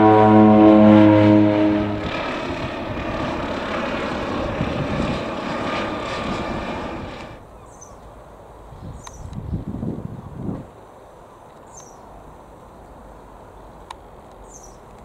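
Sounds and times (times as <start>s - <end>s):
siren-like tone: 0.0s - 2.2s
aircraft engine drone: 0.0s - 8.8s.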